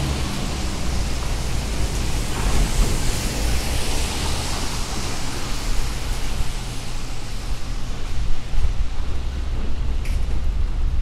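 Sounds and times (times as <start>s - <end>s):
rain hiss: 0.0s - 9.9s
low traffic rumble: 0.0s - 11.0s
tyres on wet asphalt: 0.0s - 11.0s.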